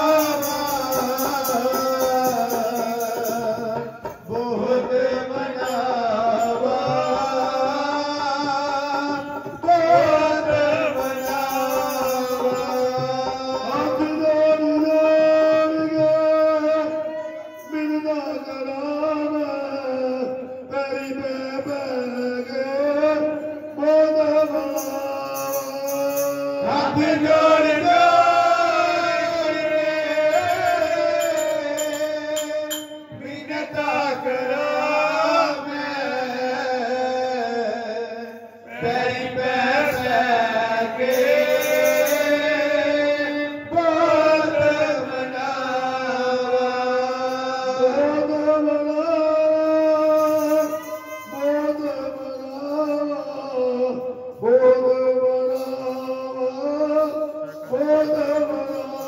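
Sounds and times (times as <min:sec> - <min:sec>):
hand drum: 0:00.0 - 0:07.9
men singing devotional song: 0:00.0 - 0:59.0
tongs jingling: 0:24.6 - 0:26.6, 0:30.1 - 0:33.2, 0:41.0 - 0:42.6, 0:50.1 - 0:51.9.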